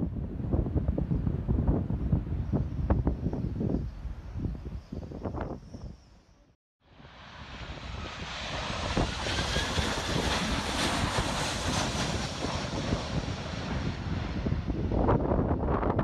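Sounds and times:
wind buffeting microphone: 0:00.0 - 0:06.2, 0:07.0 - 0:16.0
jet engines roaring: 0:06.9 - 0:15.2.

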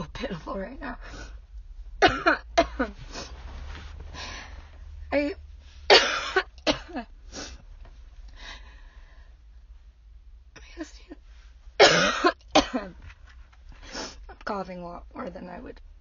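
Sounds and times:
woman coughing: 0:02.0 - 0:03.0, 0:05.9 - 0:07.1, 0:11.8 - 0:13.0.

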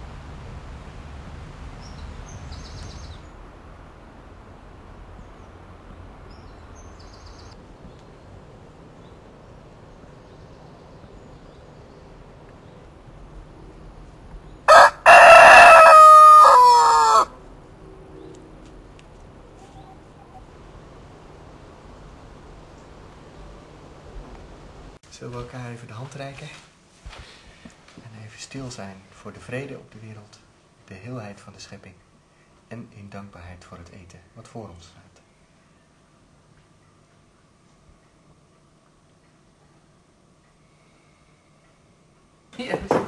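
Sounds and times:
low steady hiss: 0:00.0 - 0:43.0
rooster crowing: 0:14.7 - 0:17.4.

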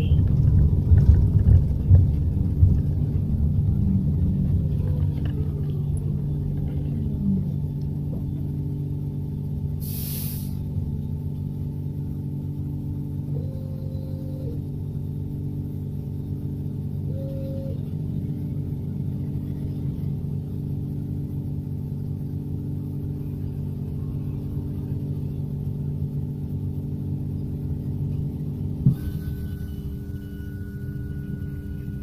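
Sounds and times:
low hum with steady tones: 0:00.0 - 0:32.0
thin high whine: 0:28.8 - 0:32.0.

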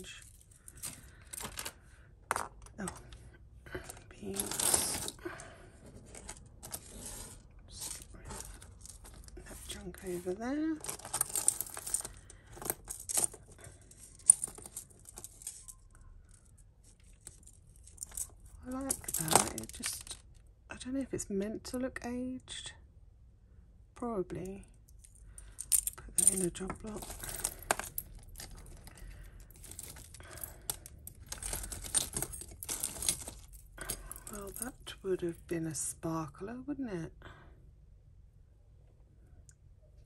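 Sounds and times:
jewellery rustling and chinking: 0:00.0 - 0:20.4, 0:24.4 - 0:35.5.

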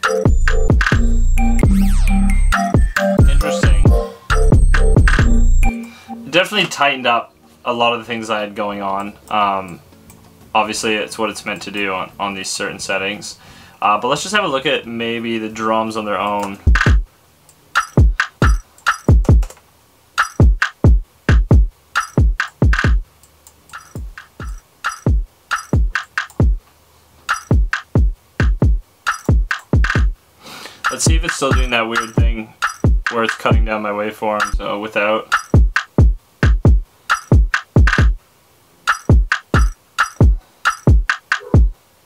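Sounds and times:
deep electronic kick drums: 0:00.1 - 0:05.7, 0:16.7 - 0:17.1, 0:18.0 - 0:19.5, 0:20.4 - 0:23.0, 0:24.0 - 0:26.6, 0:27.5 - 0:30.2, 0:31.0 - 0:33.7, 0:35.6 - 0:38.2, 0:39.1 - 0:41.8.

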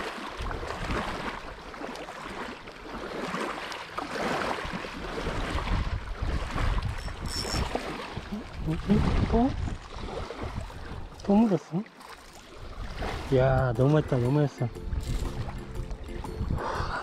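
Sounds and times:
small waves lapping at shore: 0:00.0 - 0:17.0
wind buffeting microphone: 0:04.7 - 0:11.3, 0:12.4 - 0:13.8, 0:14.8 - 0:17.0.

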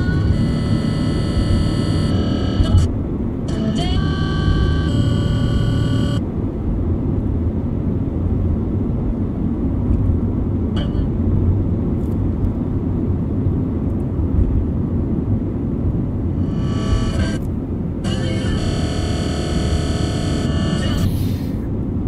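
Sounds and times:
electronic tone chord: 0:00.0 - 0:02.9, 0:03.5 - 0:06.2, 0:16.4 - 0:21.1
radio static: 0:00.0 - 0:02.9, 0:16.4 - 0:17.4, 0:18.0 - 0:21.5.

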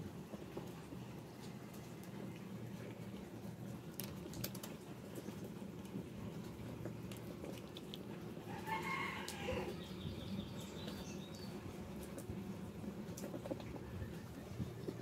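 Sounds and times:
cat chewing dry kibble: 0:00.1 - 0:09.4.

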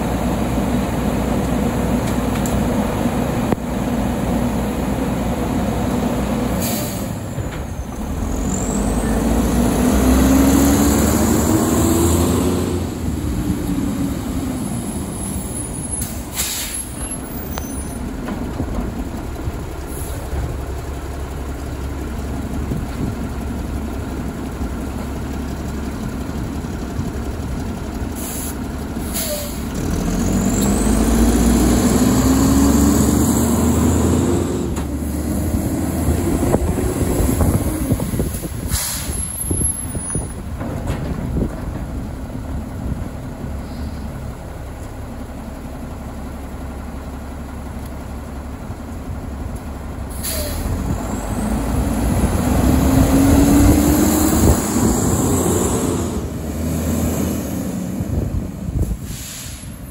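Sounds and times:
garbage truck diesel engine revving: 0:00.0 - 0:59.4
air brakes hissing: 0:06.5 - 0:07.4, 0:14.8 - 0:18.0, 0:28.2 - 0:29.7, 0:38.2 - 0:40.4, 0:43.6 - 0:44.2, 0:50.1 - 0:50.8, 0:58.8 - 0:59.9.

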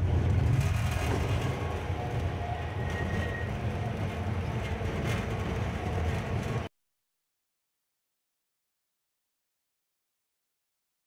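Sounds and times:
train rumbling inside carriage: 0:00.0 - 0:06.7
faint thin wheel squeals: 0:02.4 - 0:03.7.

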